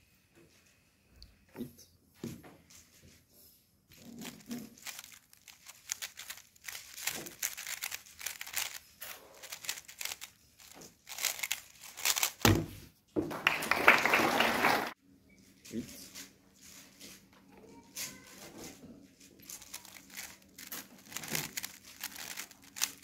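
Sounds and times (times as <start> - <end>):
rubbing handling noise: 3.9 - 12.5, 16.0 - 23.0
plastic puzzle cube clicking: 4.3 - 12.4, 19.6 - 23.0
thump: 12.4 - 13.3.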